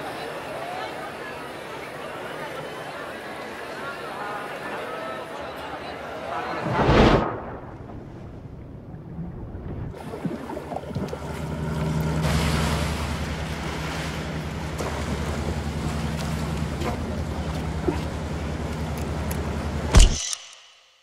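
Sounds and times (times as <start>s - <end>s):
waves washing: 6.3s - 19.2s
wind on microphone: 6.6s - 10.0s
boat engine running: 8.6s - 20.0s.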